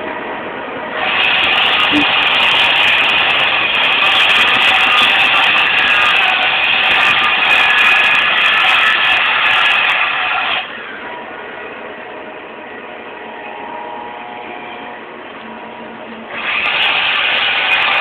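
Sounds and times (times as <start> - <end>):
freight train cars rolling on rails: 0.0 - 18.0.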